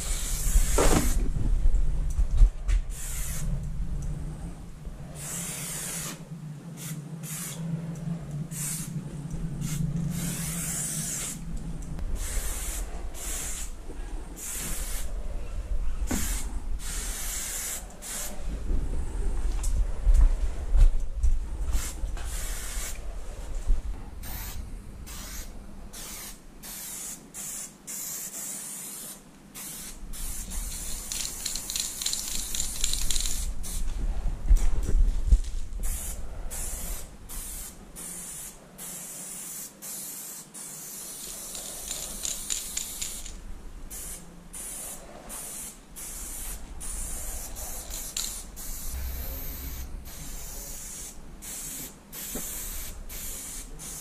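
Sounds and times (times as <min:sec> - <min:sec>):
spray paint can hissing: 0:00.0 - 0:01.2, 0:02.9 - 0:03.6, 0:05.2 - 0:06.2, 0:06.8 - 0:07.6, 0:08.5 - 0:08.9, 0:09.6 - 0:11.4, 0:12.2 - 0:13.7, 0:14.4 - 0:15.0, 0:16.1 - 0:18.4, 0:21.7 - 0:23.0, 0:24.2 - 0:33.8, 0:35.8 - 0:54.0.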